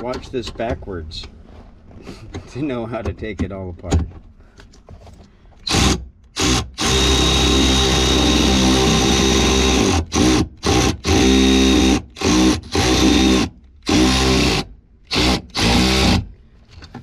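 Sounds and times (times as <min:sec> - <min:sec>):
cordless driver motor whirring: 0:05.7 - 0:16.2.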